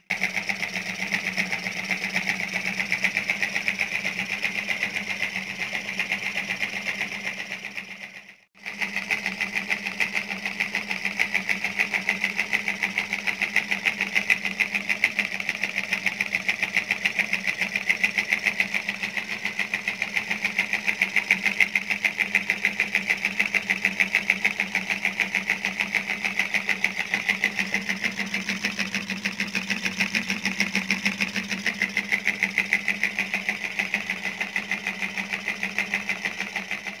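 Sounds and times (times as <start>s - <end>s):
toy steam engine mechanical rattle: 0.0s - 37.0s.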